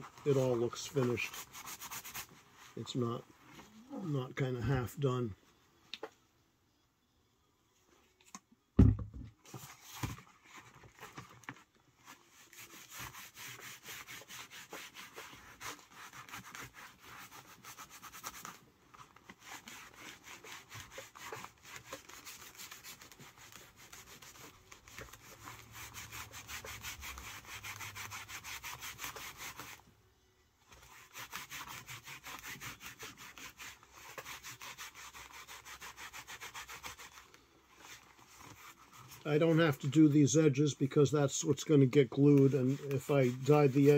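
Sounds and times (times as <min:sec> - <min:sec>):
wool pad rubbing leather: 0:00.0 - 0:03.9, 0:12.0 - 0:29.8, 0:30.7 - 0:40.0, 0:42.1 - 0:43.9.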